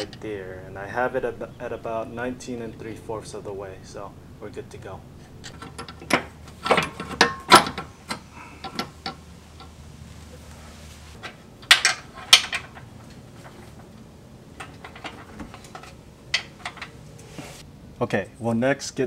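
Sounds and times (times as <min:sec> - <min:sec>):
metal clanks and clicks: 0:05.2 - 0:09.8, 0:11.2 - 0:14.0, 0:14.6 - 0:17.0.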